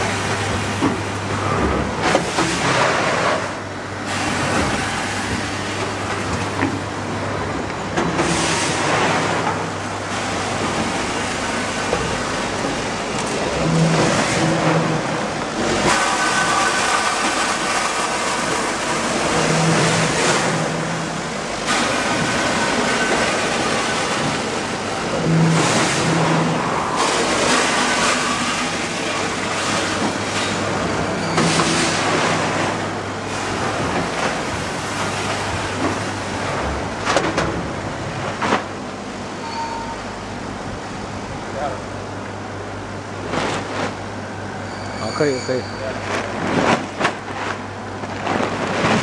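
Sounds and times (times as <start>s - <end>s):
bagging machine running: 0.0s - 49.0s
dry snack rattling through chutes: 13.1s - 21.0s.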